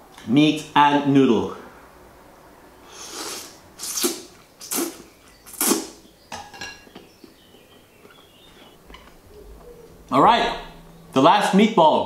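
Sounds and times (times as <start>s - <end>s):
person slurping noodles: 2.9s - 5.9s.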